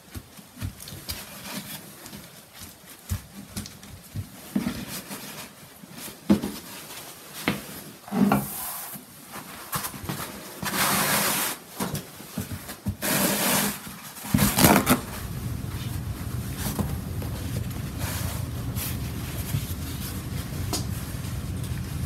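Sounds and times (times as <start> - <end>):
paper towel rustling: 4.4 - 22.0
low steady noise: 14.7 - 22.0.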